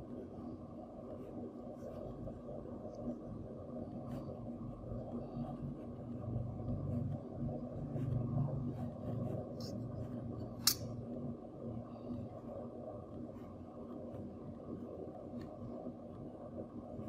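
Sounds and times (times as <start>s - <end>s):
low steady hum: 0.0s - 17.0s
sharp click: 10.6s - 10.9s.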